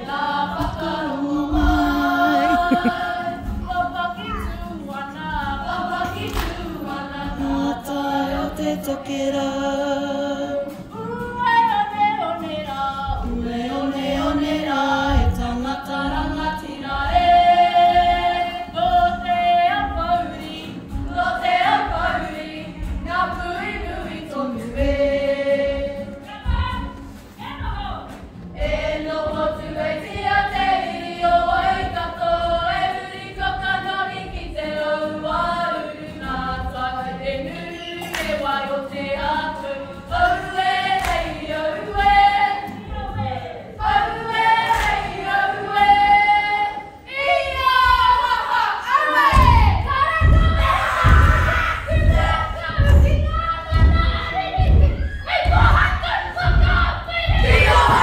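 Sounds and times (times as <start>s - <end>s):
female voices singing together: 0.0s - 58.0s
low thuds: 49.3s - 58.0s.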